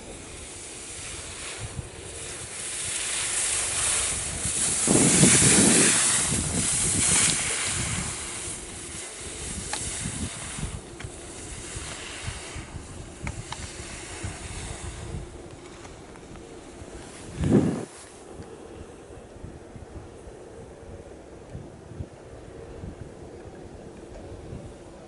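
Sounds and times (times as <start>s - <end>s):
skis scraping over snow: 0.0s - 18.3s
wind buffeting microphone: 0.0s - 25.0s.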